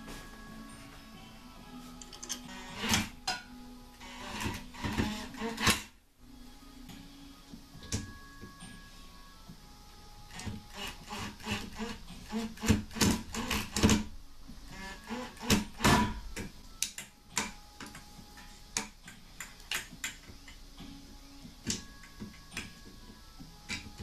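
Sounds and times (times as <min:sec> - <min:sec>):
metal parts clicking and knocking: 0:02.0 - 0:03.0
cordless drill running: 0:10.3 - 0:13.8.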